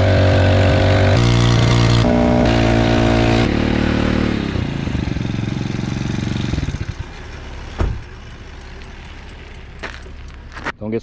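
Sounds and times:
small engine running and idling: 3.7 - 10.4.

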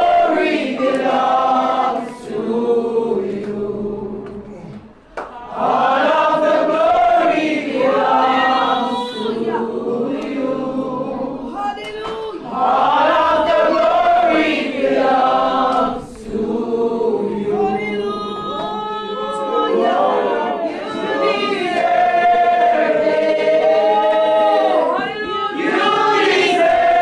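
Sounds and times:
congregation singing: 0.0 - 27.0.

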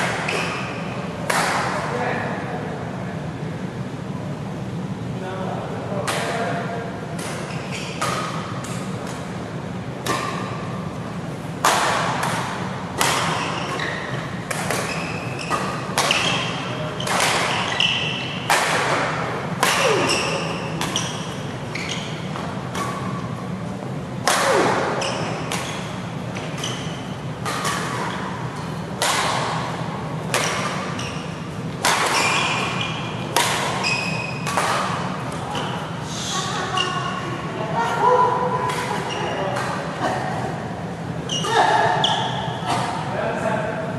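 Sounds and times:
racket striking shuttlecock: 0.0 - 1.8, 7.2 - 9.4, 10.0 - 10.8, 11.6 - 35.7, 38.6 - 40.2
sneakers squeaking on court: 0.2 - 0.9, 7.3 - 9.0, 12.2 - 23.6, 24.5 - 36.0, 38.6 - 39.8, 41.2 - 43.1.

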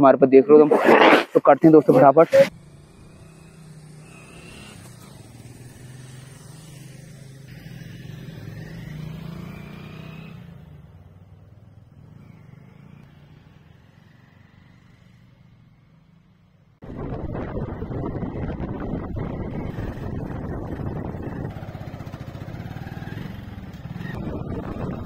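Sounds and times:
motorcycle engines passing: 0.3 - 25.0.

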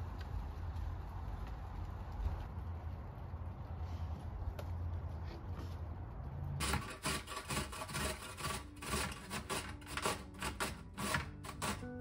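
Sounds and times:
cucumber grating on metal grater: 6.6 - 12.0.

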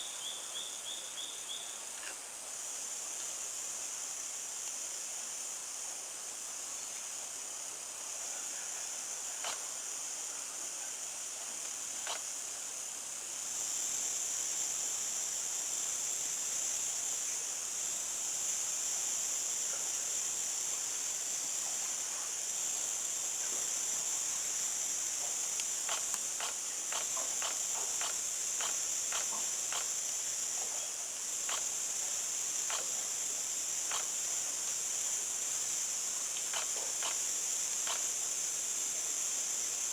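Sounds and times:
insects buzzing: 0.0 - 39.9
sharp ticks: 25.6 - 29.9, 31.5 - 31.7, 32.7 - 32.9, 33.9 - 34.1, 36.4 - 37.2, 37.8 - 38.1.

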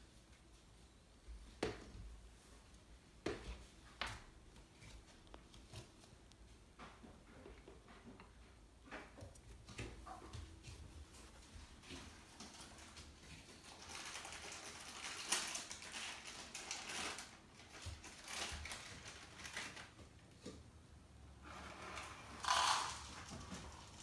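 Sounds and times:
dry cat food rattling: 22.2 - 24.0.

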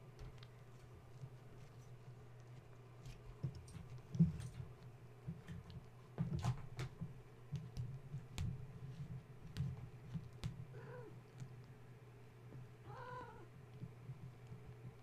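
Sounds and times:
steady low hum: 0.0 - 15.0
kitten meowing: 12.9 - 13.4.

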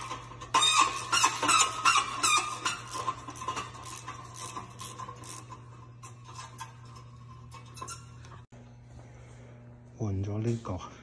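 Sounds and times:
ratchet wrench clicking: 0.0 - 7.0
steady low hum: 0.0 - 11.0.

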